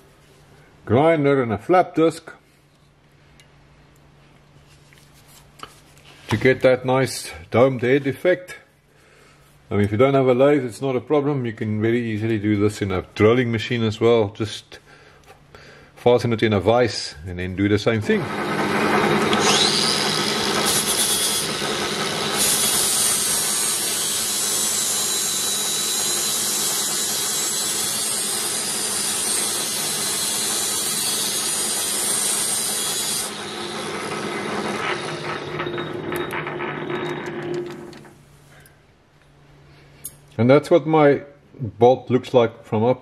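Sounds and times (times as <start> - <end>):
lathe running: 18.2 - 38.1
high-pitched grinding of metal: 19.2 - 37.6.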